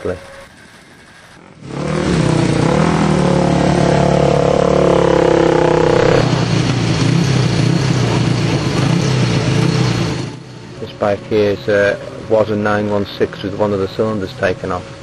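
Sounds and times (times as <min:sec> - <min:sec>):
motorcycle engine with throttle blips: 0:00.0 - 0:12.4.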